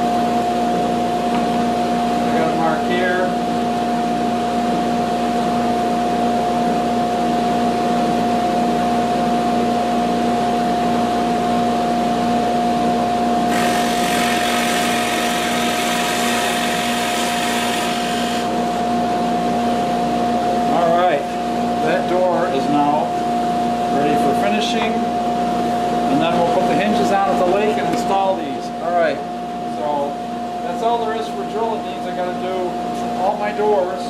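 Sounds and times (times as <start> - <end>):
dust collector and motor humming: 13.2 - 34.0
drill bit boring into wood: 13.5 - 18.5.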